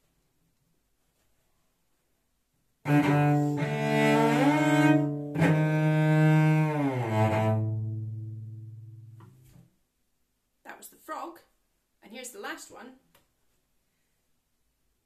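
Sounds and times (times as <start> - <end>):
solo cello bowed: 2.8 - 9.4.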